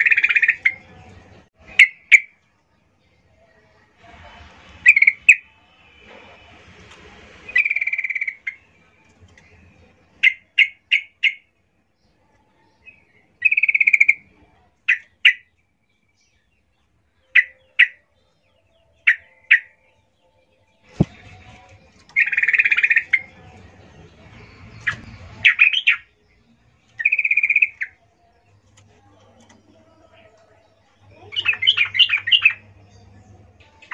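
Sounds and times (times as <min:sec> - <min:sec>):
bird chirping: 0:00.0 - 0:02.4, 0:07.3 - 0:33.9
buzzy bird notes: 0:17.2 - 0:33.9.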